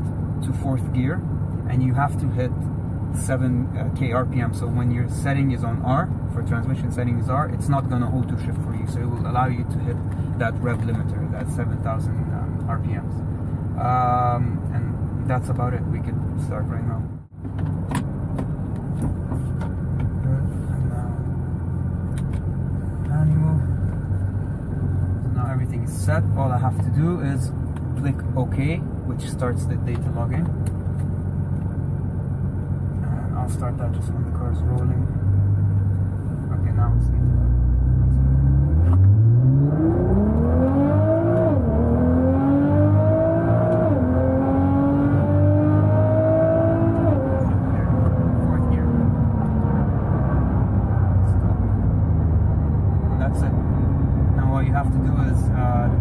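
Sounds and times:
car engine accelerating hard: 31.8s - 56.0s.

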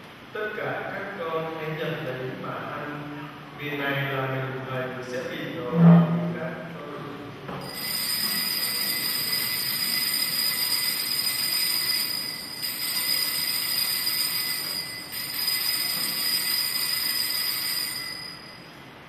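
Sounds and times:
altar bells ringing: 7.6s - 18.8s.

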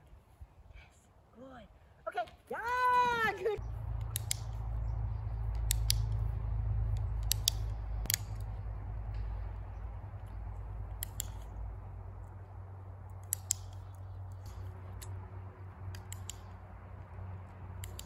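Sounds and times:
low steady rumble: 3.6s - 18.0s
sharp clicks: 3.6s - 18.0s.

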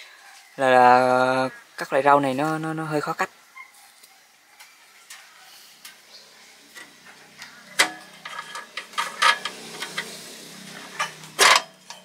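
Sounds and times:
metal latch clicking and clinking: 7.8s - 10.1s, 11.0s - 12.0s.

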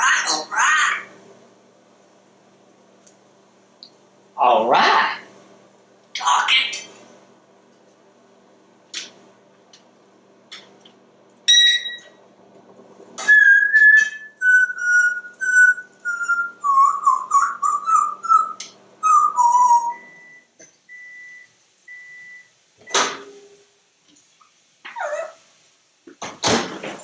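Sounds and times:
short even beeps: 11.5s - 12.1s
parrot whistling: 13.2s - 20.4s.

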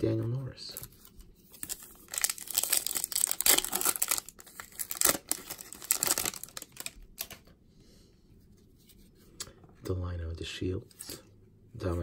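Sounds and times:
wrapper tearing and crinkling: 1.6s - 7.4s.

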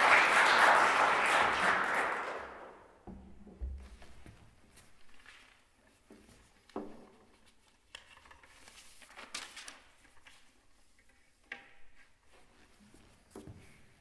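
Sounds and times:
paper pages rustling: 4.3s - 11.3s.

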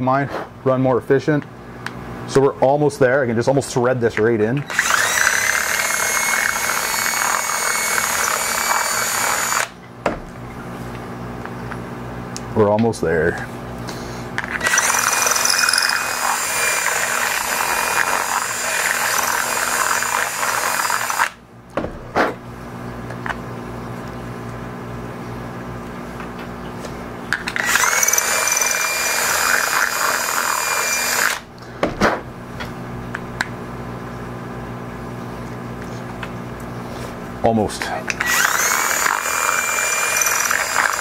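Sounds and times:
cordless drill reaming acrylic: 4.6s - 9.8s, 14.5s - 21.4s, 27.5s - 31.4s, 38.1s - 41.0s.

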